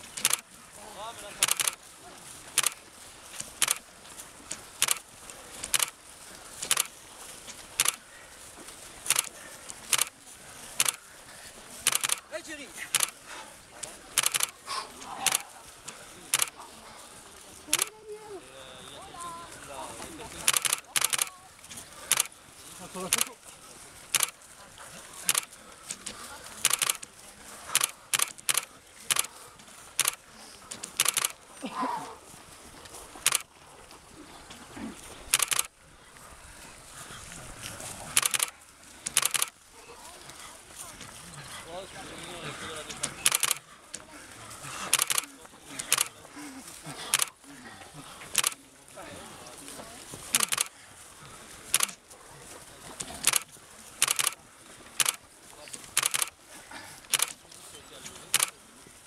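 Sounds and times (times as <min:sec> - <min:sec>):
faint outdoor hiss: 0:00.0 - 0:59.0
sharp short clicks: 0:00.2 - 0:00.5, 0:01.4 - 0:01.8, 0:02.6 - 0:02.8, 0:03.5 - 0:03.8, 0:04.8 - 0:05.0, 0:05.6 - 0:06.0, 0:07.8 - 0:08.0, 0:09.1 - 0:09.3, 0:09.9 - 0:10.1, 0:10.8 - 0:11.0, 0:11.8 - 0:12.2, 0:12.9 - 0:13.2, 0:14.2 - 0:14.6, 0:16.3 - 0:16.5, 0:17.7 - 0:17.9, 0:20.5 - 0:21.3, 0:22.1 - 0:22.3, 0:24.1 - 0:24.4, 0:25.2 - 0:25.5, 0:26.6 - 0:27.0, 0:27.7 - 0:29.3, 0:30.0 - 0:30.2, 0:30.9 - 0:31.4, 0:33.2 - 0:33.5, 0:35.3 - 0:35.7, 0:38.2 - 0:38.5, 0:39.1 - 0:39.6, 0:43.2 - 0:43.6, 0:44.9 - 0:46.1, 0:47.1 - 0:47.4, 0:48.3 - 0:48.6, 0:50.3 - 0:50.7, 0:51.7 - 0:52.0, 0:53.2 - 0:54.4, 0:56.0 - 0:56.4, 0:57.1 - 0:57.4, 0:58.3 - 0:58.6.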